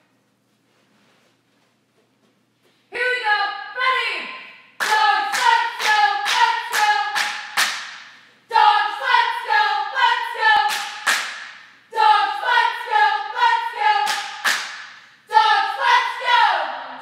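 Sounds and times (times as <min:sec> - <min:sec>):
cheerleaders chanting in unison: 0:02.9 - 0:17.0
sharp hand claps: 0:04.8 - 0:08.2, 0:10.7 - 0:11.6, 0:14.1 - 0:15.0.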